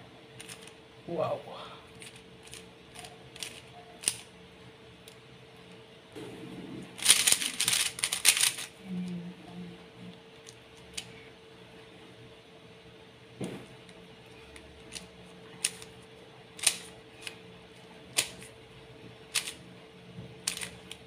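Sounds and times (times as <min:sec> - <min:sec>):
rapid clacking cube turns: 0:00.4 - 0:00.7, 0:02.0 - 0:04.2, 0:07.0 - 0:08.7, 0:14.9 - 0:15.9, 0:16.6 - 0:17.4, 0:19.3 - 0:19.6, 0:20.4 - 0:21.0
puzzle cube clicking: 0:07.0 - 0:08.7, 0:16.6 - 0:16.9, 0:19.3 - 0:19.6, 0:20.5 - 0:20.7.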